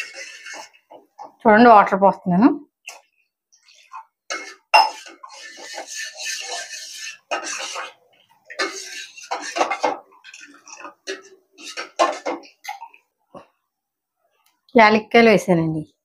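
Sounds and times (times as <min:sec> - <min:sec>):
spoon scraping metal pot: 0:00.0 - 0:01.4, 0:02.8 - 0:13.0.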